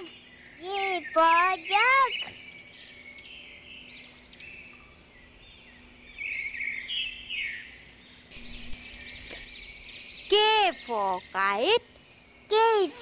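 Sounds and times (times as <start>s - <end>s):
faint low hum: 0.0s - 12.9s
small birds chirping: 0.0s - 13.0s.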